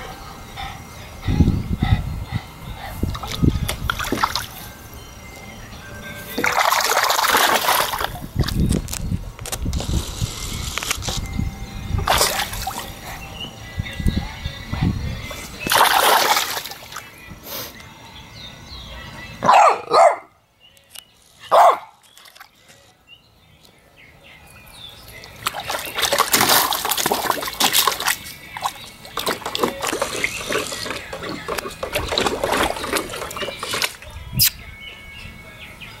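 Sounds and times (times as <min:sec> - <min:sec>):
dog splashing water: 0:03.1 - 0:04.7, 0:06.4 - 0:08.6, 0:12.0 - 0:13.2, 0:15.6 - 0:17.0, 0:25.1 - 0:34.0
dog barking: 0:19.4 - 0:20.3, 0:21.5 - 0:22.0.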